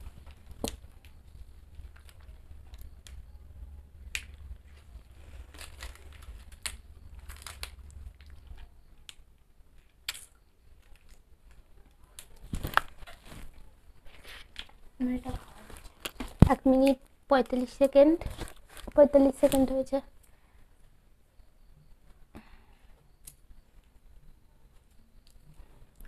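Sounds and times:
plastic wrappers crinkling: 0.0 - 3.3, 4.0 - 9.2, 9.8 - 19.9.

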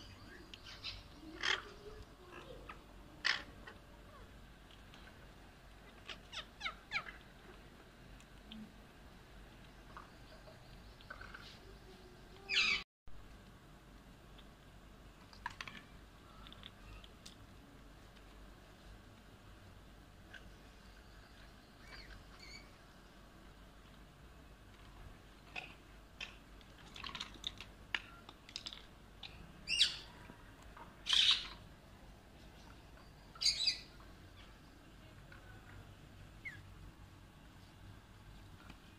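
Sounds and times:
beaks and claws clicking on cage: 24.7 - 30.0
parakeets squawking: 31.1 - 31.5.

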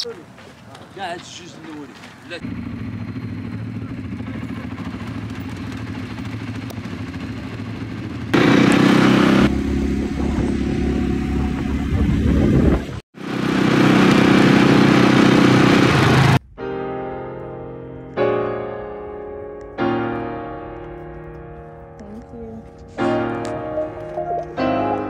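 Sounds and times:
quad bike engines running: 0.7 - 16.4.

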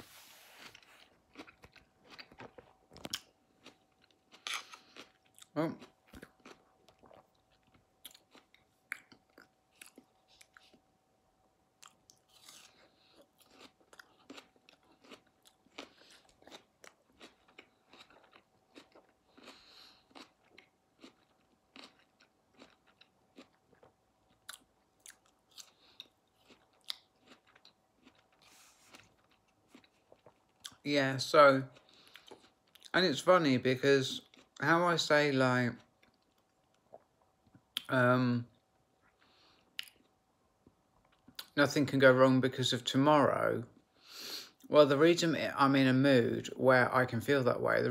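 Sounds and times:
faint steady hum: 0.0 - 47.9
chewing crunchy food: 0.6 - 10.9, 11.8 - 30.8, 31.7 - 33.0.

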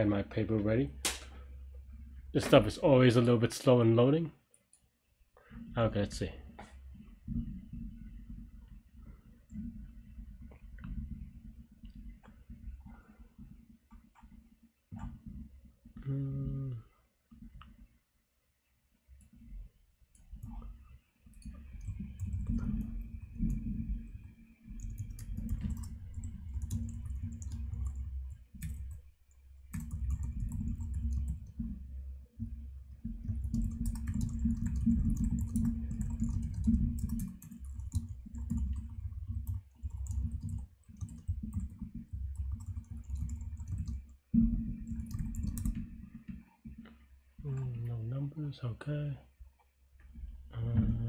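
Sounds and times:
typing on computer keyboard: 21.3 - 29.1, 29.7 - 31.6, 33.2 - 44.1, 44.8 - 45.9.

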